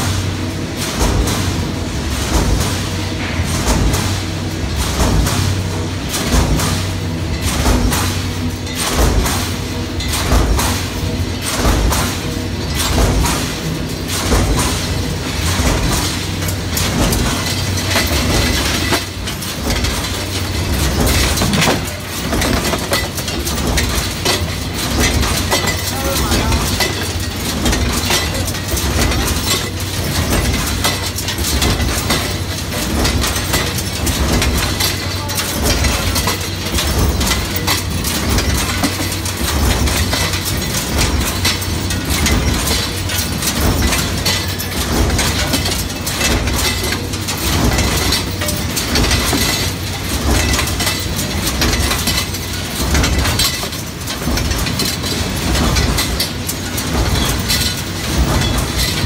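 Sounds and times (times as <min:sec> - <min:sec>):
stamping press clanking: 0:00.8 - 0:59.0
metal parts clinking: 0:16.0 - 0:59.0.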